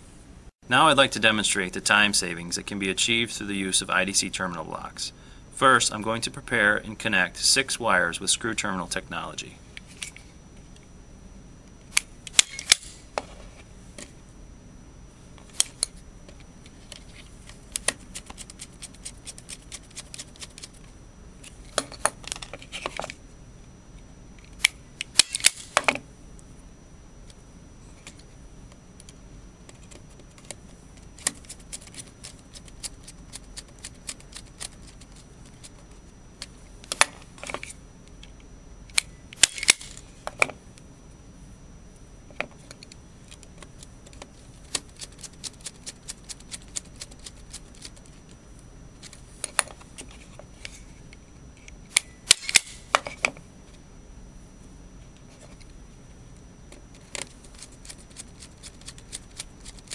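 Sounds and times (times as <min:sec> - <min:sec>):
wires clicking into terminals: 0:28.0 - 0:40.9.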